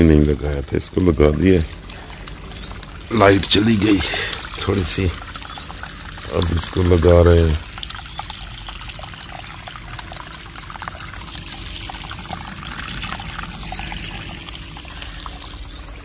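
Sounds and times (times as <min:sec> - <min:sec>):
water gushing from a pipe: 0:00.0 - 0:16.0.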